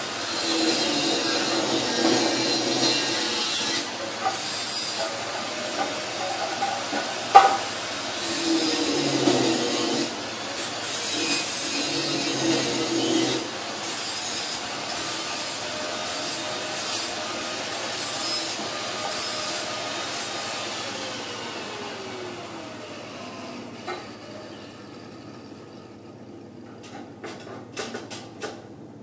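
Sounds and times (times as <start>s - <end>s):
power tool rasping on steel: 0.2s - 7.2s, 8.2s - 20.4s.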